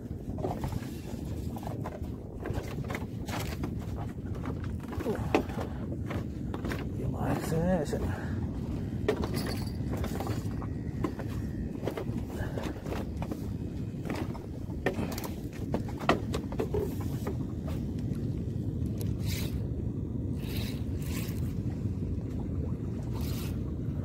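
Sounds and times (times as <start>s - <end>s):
wind and water rumble: 0.0s - 24.0s.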